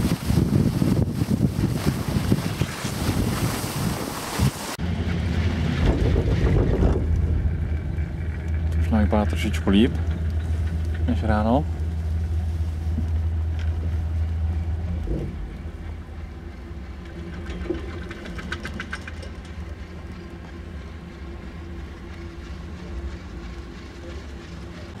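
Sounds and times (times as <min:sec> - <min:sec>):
chairlift clatter: 0:00.0 - 0:25.0
chairlift hum: 0:00.0 - 0:25.0.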